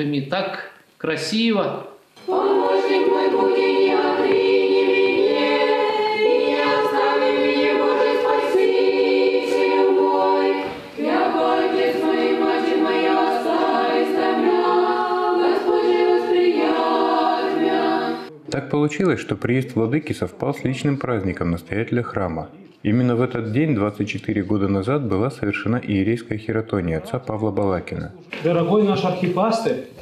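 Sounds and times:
choir singing a cappella: 0:02.2 - 0:18.4.

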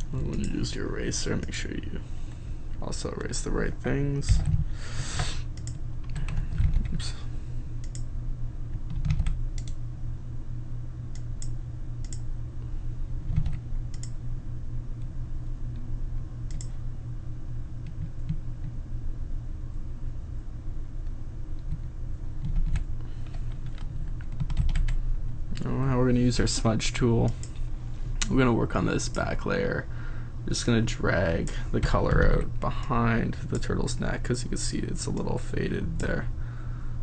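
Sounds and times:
steady low hum: 0:00.0 - 0:37.0
computer keyboard keys clicking: 0:05.6 - 0:07.0, 0:08.9 - 0:09.8, 0:13.3 - 0:14.2, 0:22.4 - 0:25.0.

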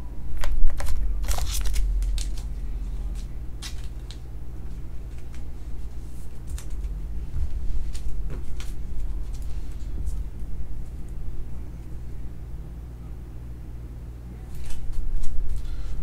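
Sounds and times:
steady low hum: 0:00.0 - 0:16.0
plastic sleeve crinkling: 0:00.4 - 0:11.2.

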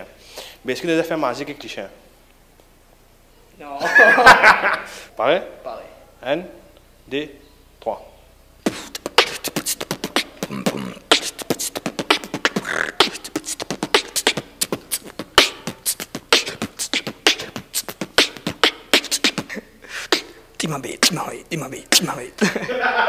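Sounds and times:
beatboxing into microphone: 0:08.6 - 0:22.6.

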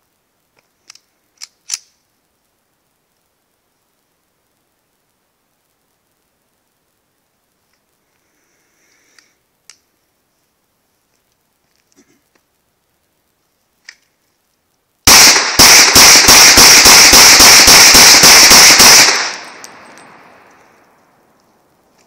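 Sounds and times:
rapid pistol shots: 0:15.1 - 0:20.2.

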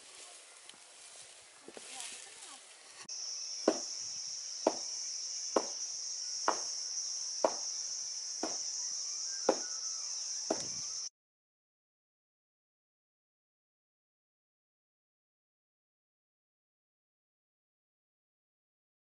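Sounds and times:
insects shrilling: 0:01.9 - 0:11.1
stick thudding on millet: 0:04.6 - 0:04.9, 0:05.6 - 0:05.8, 0:06.5 - 0:06.7, 0:09.5 - 0:09.7.

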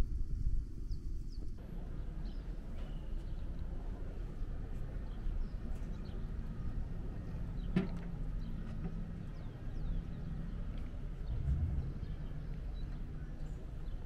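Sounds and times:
steady low rumble: 0:00.0 - 0:07.7, 0:09.3 - 0:14.0
faint engine hum: 0:00.3 - 0:14.0
faint bird chirps: 0:00.8 - 0:03.8.

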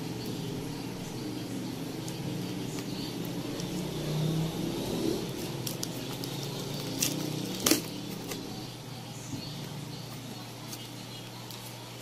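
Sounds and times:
scissors cutting packing tape: 0:05.3 - 0:08.5
tape cracking off cardboard: 0:05.6 - 0:08.4.

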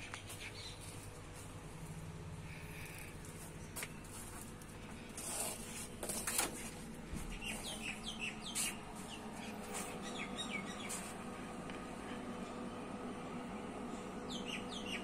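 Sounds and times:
steady low hum: 0:00.0 - 0:15.0
small bird chirping: 0:07.3 - 0:11.1, 0:14.3 - 0:15.0.

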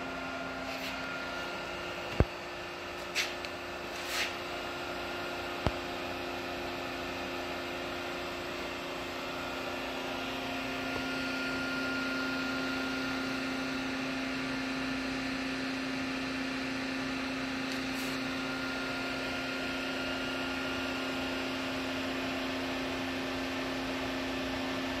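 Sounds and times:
machine low drone: 0:00.0 - 0:02.9
higher machine whine: 0:00.0 - 0:23.1.

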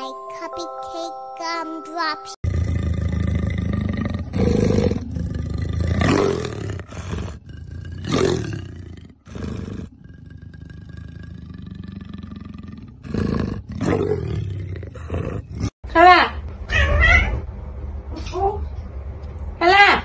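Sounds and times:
leopard growling: 0:02.4 - 0:15.8.

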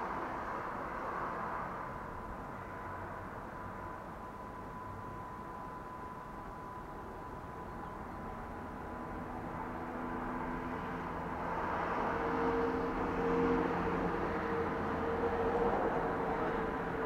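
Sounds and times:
traffic noise: 0:00.0 - 0:17.0
large vehicle driving past: 0:08.4 - 0:17.0.

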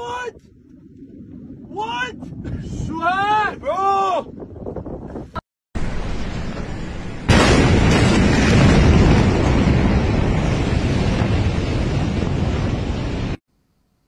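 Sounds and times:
explosion boom and rumble: 0:05.8 - 0:13.4.

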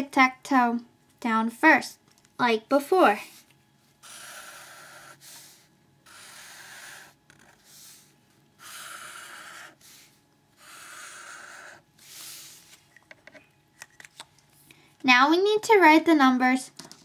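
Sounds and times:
felt-tip marker squeaking on paper: 0:04.0 - 0:05.3, 0:06.1 - 0:08.0, 0:08.6 - 0:11.8.

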